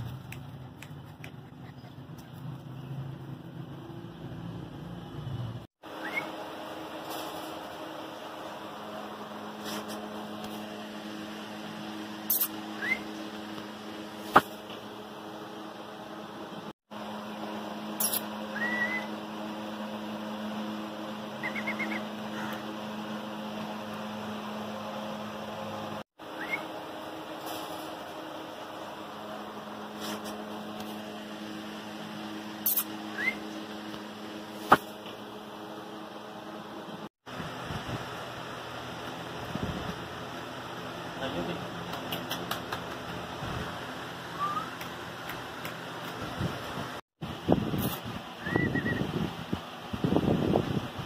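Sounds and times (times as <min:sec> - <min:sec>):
steady low hum: 0:00.0 - 0:51.0
short scrape: 0:09.6 - 0:10.0, 0:29.9 - 0:30.4.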